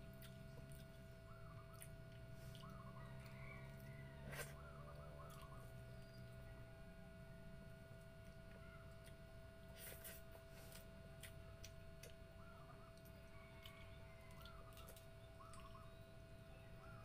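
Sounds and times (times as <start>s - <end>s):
faint steady hum: 0.0s - 17.0s
eating clicks and smacks: 10.7s - 12.2s, 12.9s - 15.8s.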